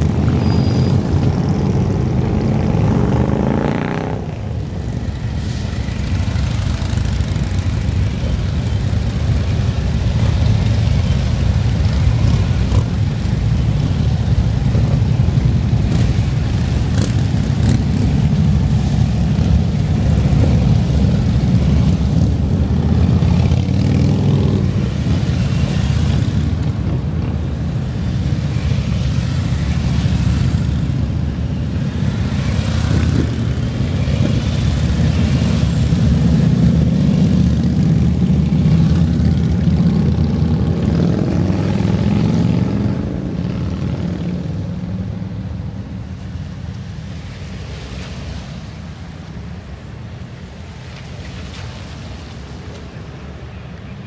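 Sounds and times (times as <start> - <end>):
vehicle engines passing: 0.0 - 54.0
tyre hiss on wet road: 5.3 - 6.3.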